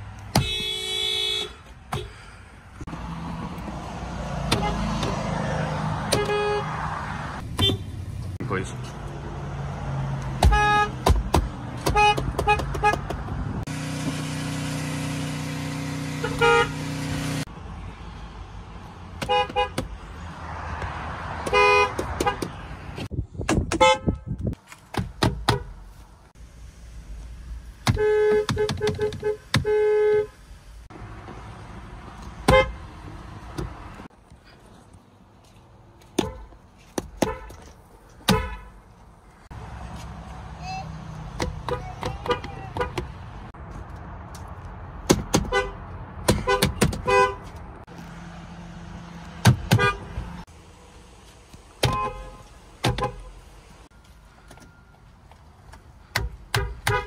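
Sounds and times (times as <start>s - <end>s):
car horns honking: 0.3s - 2.2s, 4.4s - 5.3s, 5.9s - 8.0s, 10.4s - 11.2s, 11.8s - 13.1s, 13.7s - 17.4s, 19.2s - 19.9s, 21.4s - 22.7s, 23.7s - 24.4s, 27.8s - 30.5s, 32.4s - 32.9s, 37.2s - 38.8s, 41.4s - 43.3s, 45.3s - 47.6s, 49.4s - 50.4s, 51.8s - 54.8s, 56.5s - 57.0s.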